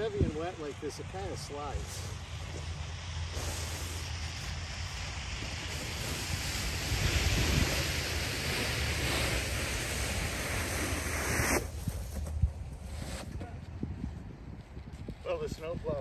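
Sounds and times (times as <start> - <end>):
wind rumble on microphone: 0.0 - 16.0
snow pusher scraping asphalt: 1.2 - 13.4.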